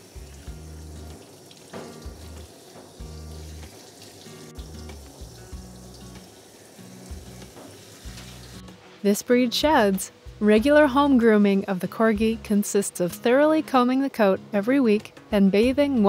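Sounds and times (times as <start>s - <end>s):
shower sprayer hissing: 0.0s - 8.8s
background music with bass: 0.1s - 1.2s, 2.0s - 3.7s, 4.4s - 6.3s, 6.9s - 8.8s, 9.6s - 11.4s, 14.4s - 16.0s.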